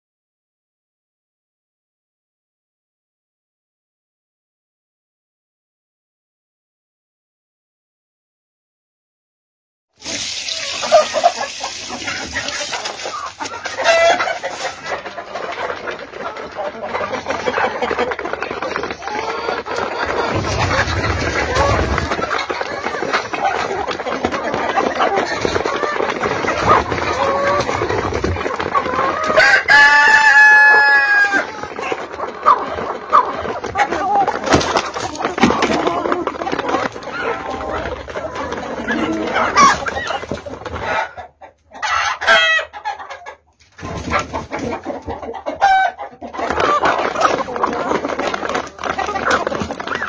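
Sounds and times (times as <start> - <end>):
chickens clucking: 10.0 - 50.0
rooster crowing: 29.4 - 31.5.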